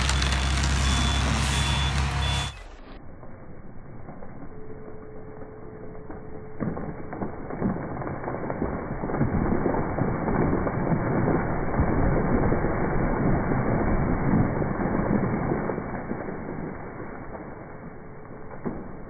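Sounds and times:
tree crashing through branches: 0.0s - 2.8s, 6.6s - 19.0s.

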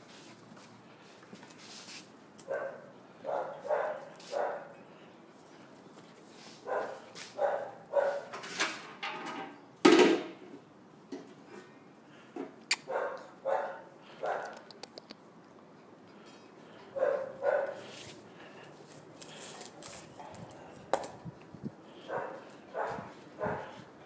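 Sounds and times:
puppies barking: 2.5s - 4.8s, 6.7s - 8.3s, 12.9s - 14.5s, 16.9s - 17.9s, 22.1s - 23.8s.

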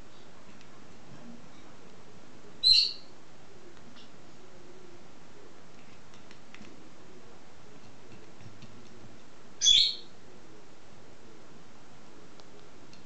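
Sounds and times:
parrot chirp: 2.6s - 3.1s, 9.6s - 10.1s.

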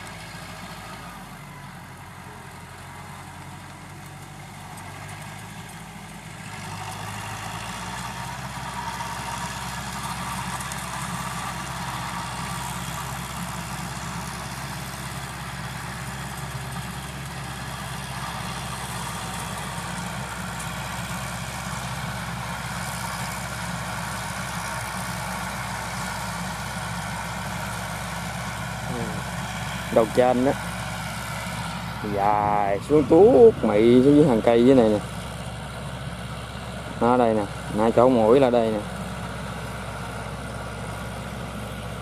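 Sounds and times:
rotary tiller churning soil: 0.0s - 42.0s
tractor diesel engine running: 0.0s - 42.0s.

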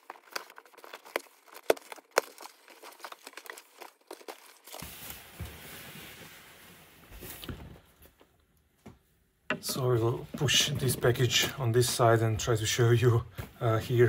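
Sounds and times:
paper bags crinkling: 0.0s - 5.5s.

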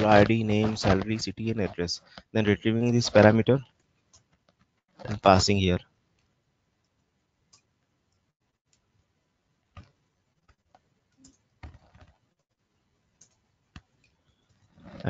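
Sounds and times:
computer keyboard and mouse clicks: 9.7s - 12.2s, 13.2s - 14.6s.

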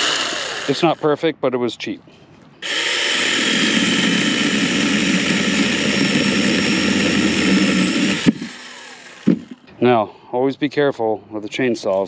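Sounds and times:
high motor whine: 0.0s - 1.1s, 2.6s - 9.8s
mini chainsaw cutting branch: 0.0s - 1.1s, 2.6s - 9.6s.

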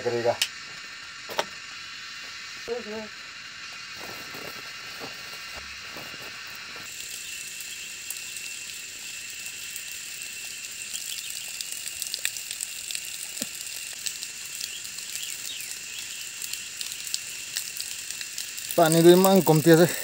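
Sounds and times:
water trickling onto ground: 5.8s - 20.0s.

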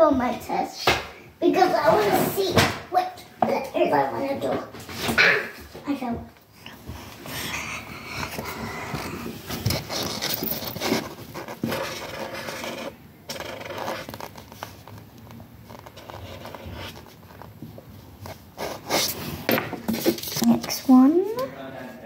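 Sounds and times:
paper rustling: 9.5s - 19.3s.

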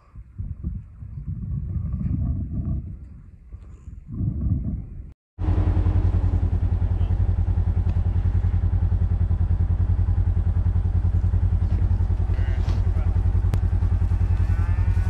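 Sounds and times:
vehicle engine idling: 5.4s - 15.0s.

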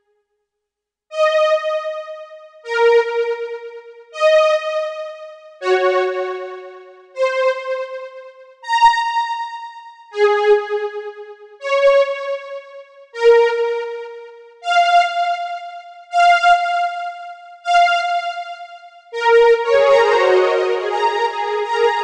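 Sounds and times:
synthesizer electric piano melody: 13.2s - 22.0s.

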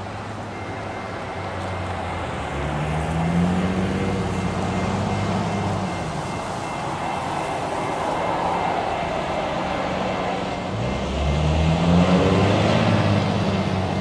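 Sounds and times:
road traffic passing: 0.0s - 14.0s
vehicle engine speeding up: 10.8s - 14.0s.

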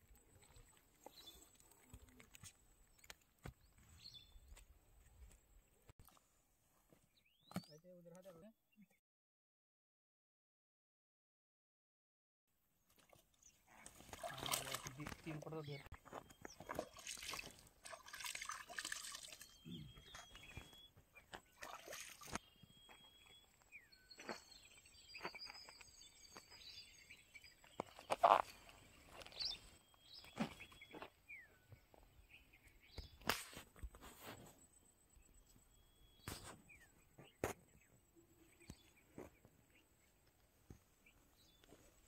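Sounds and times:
water splashing and sloshing: 0.0s - 5.4s, 12.9s - 23.1s.

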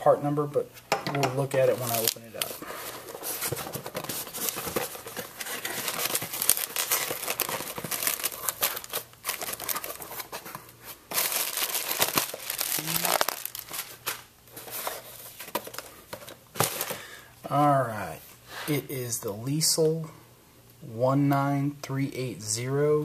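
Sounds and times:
plastic bag crinkling: 1.6s - 15.9s.

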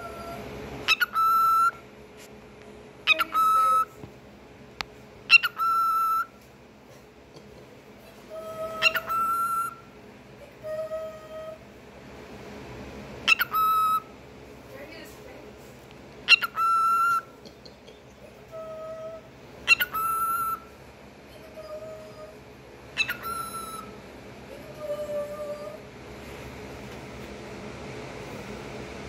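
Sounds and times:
cockatiel chirping and whistling: 0.0s - 1.8s, 3.1s - 3.9s, 5.3s - 6.3s, 8.3s - 9.9s, 13.3s - 14.1s, 16.3s - 17.3s, 18.5s - 20.7s, 23.0s - 24.0s.

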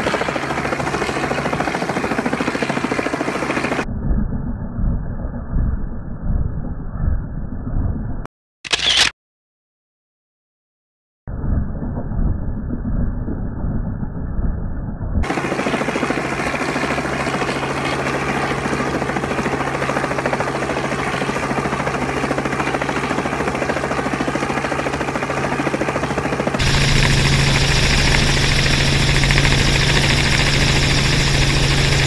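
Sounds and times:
helicopter hovering: 0.0s - 3.8s, 15.2s - 32.0s.

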